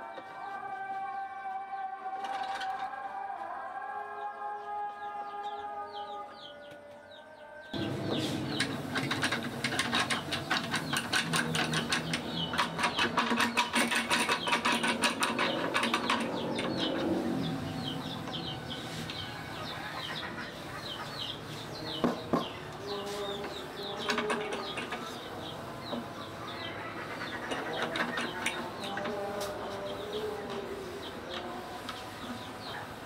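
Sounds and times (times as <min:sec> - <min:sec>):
birds chirping: 0:00.0 - 0:33.0
wooden handwheels clicking and rattling: 0:07.8 - 0:18.7, 0:23.4 - 0:29.6.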